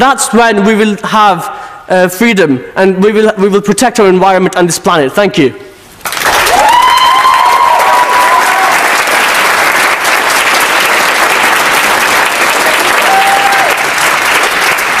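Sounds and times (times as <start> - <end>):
crowd applauding: 6.0 - 15.0
cheers and whoops: 6.4 - 9.1, 12.6 - 14.0.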